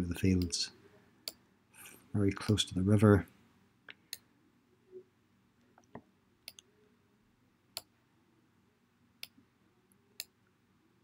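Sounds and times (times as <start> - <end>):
computer mouse clicks: 5.8 - 6.7.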